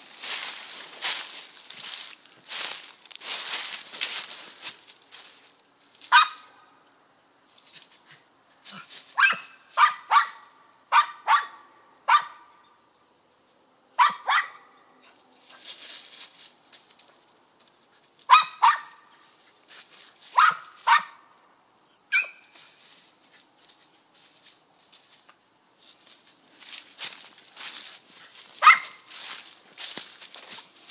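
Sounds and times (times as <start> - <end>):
dog barking: 6.1 - 6.6, 9.2 - 12.4, 14.0 - 14.7, 18.3 - 19.1, 20.3 - 21.2, 28.6 - 29.1.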